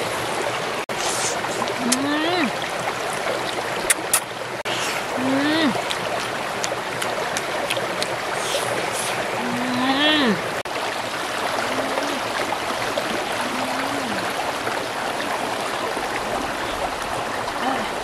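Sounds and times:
stream running over rocks: 0.0 - 18.0
woman humming: 5.1 - 5.8, 9.4 - 10.4, 11.6 - 12.3, 13.3 - 14.3, 17.6 - 18.0.

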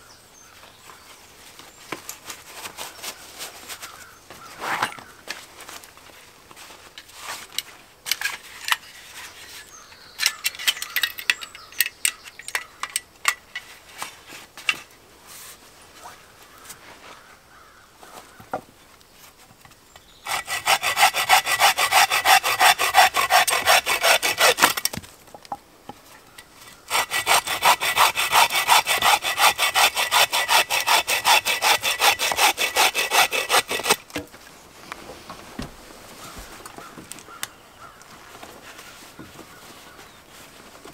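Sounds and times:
bow saw cutting log: 20.2 - 25.0, 26.9 - 34.1.

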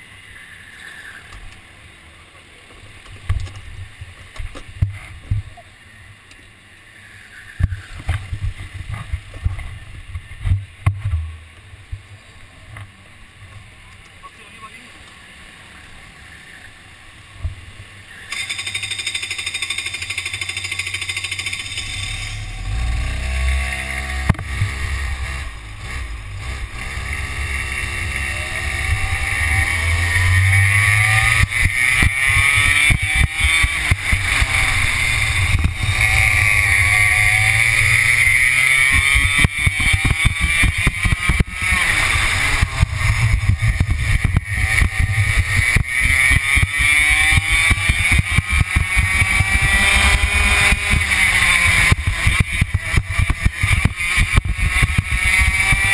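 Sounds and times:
kart engine revving: 18.2 - 55.9.

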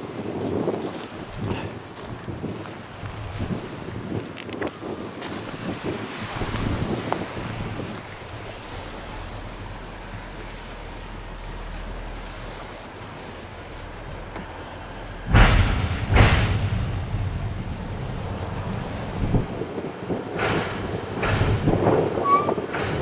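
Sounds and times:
loud wind buffets on microphone: 0.0 - 23.0
wind rumble on microphone: 0.0 - 23.0.

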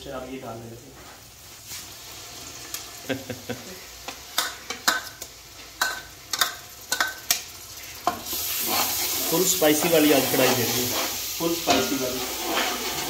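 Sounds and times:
oil sizzling: 0.0 - 13.0
metal spoon clanking against pan: 4.4 - 7.4.

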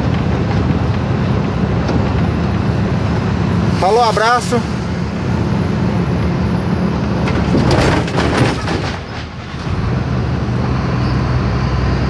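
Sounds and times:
truck engine hum: 0.0 - 12.0
rattling and knocking: 7.2 - 10.1.

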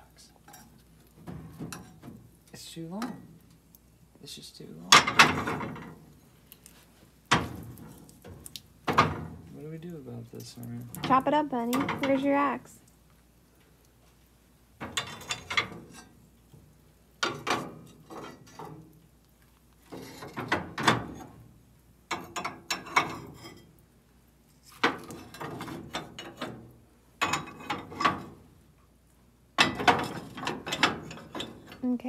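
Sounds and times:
cast iron stove lids clanking: 0.5 - 2.3, 4.9 - 6.1, 11.0 - 12.3, 14.8 - 16.2, 17.2 - 18.8, 19.9 - 21.4, 22.1 - 23.8, 24.8 - 28.4, 29.6 - 31.9.

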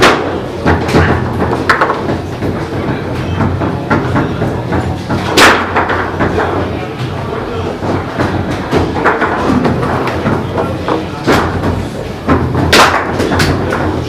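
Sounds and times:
loud sharp knock: 0.0 - 6.5, 7.9 - 14.0
foosball rods rattling: 0.0 - 14.0
plastic figures tapping ball: 0.6 - 6.6.

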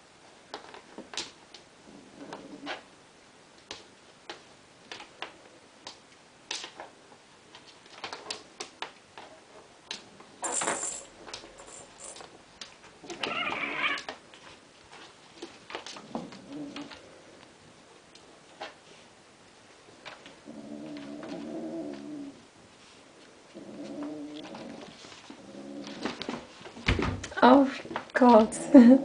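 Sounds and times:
cat crying: 13.1 - 14.1.

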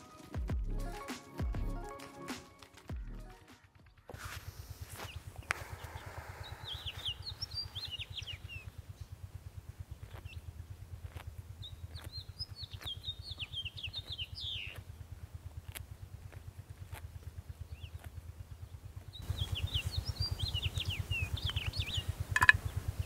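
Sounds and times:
songbirds twittering: 3.9 - 23.0
steady rapid low throb: 4.5 - 23.0
sharp ticks: 6.9 - 23.0.

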